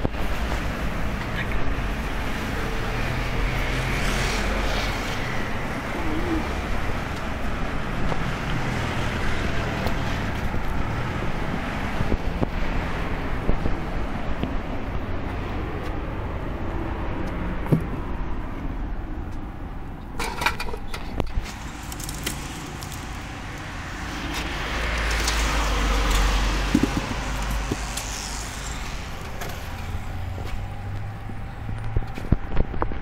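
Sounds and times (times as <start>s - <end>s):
road traffic: 0.0s - 33.0s
vehicle passing: 1.8s - 19.0s, 21.4s - 32.6s
plastic bottles knocking: 26.6s - 27.8s.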